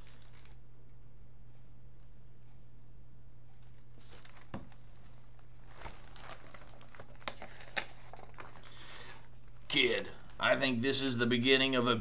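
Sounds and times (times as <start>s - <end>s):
book pages turning: 0.0s - 0.6s, 3.6s - 10.4s
steady low hum: 0.0s - 12.0s.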